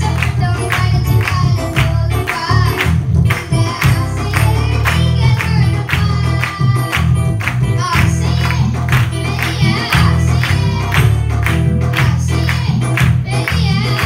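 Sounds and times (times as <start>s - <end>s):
electronic keyboard accompaniment: 0.0s - 14.0s
children singing into microphones: 7.8s - 11.1s.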